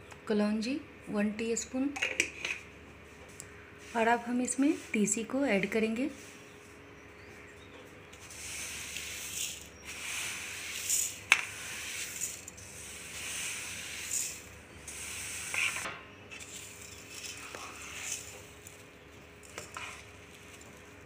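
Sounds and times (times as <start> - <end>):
seeds pouring into a steel bowl: 8.2 - 21.0.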